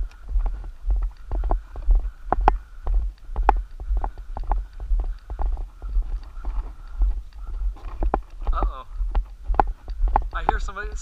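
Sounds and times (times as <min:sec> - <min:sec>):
constant low rumble: 0:00.0 - 0:11.0
footsteps crunching on gravel: 0:00.0 - 0:11.0.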